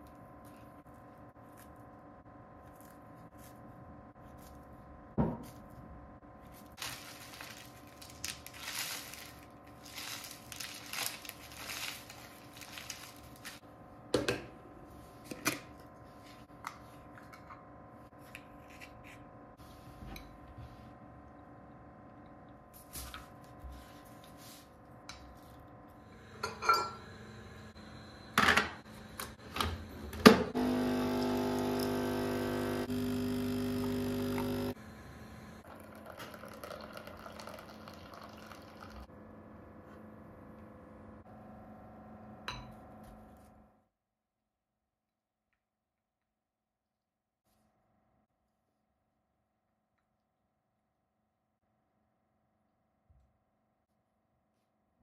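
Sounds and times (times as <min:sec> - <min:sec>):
granola pouring into a bowl: 0:06.8 - 0:13.6
coffee machine pump humming: 0:26.0 - 0:39.1
tableware clinking: 0:26.4 - 0:27.0.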